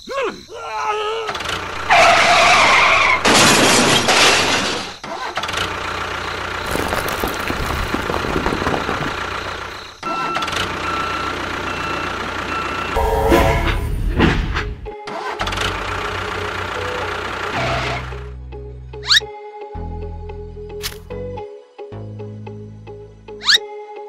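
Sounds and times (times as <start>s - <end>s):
engine starting and running: 1.3s - 18.4s.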